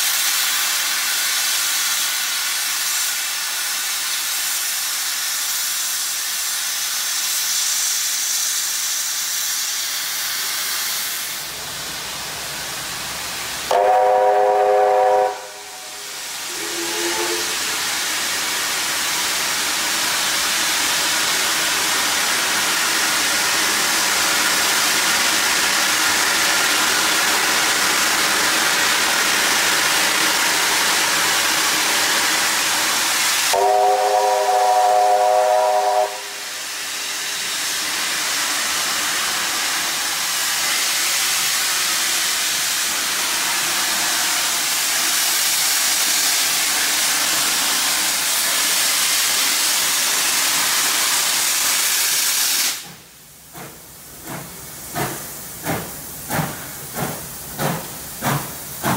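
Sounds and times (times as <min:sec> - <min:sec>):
locomotive steam hissing: 0:00.0 - 0:58.9
steam whistle blast: 0:13.7 - 0:17.9, 0:33.5 - 0:36.6.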